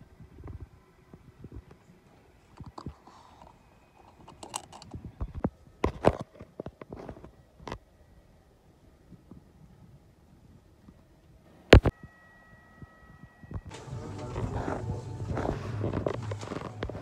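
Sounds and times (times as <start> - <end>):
phone handling rustles: 2.5 - 7.8, 13.6 - 17.0.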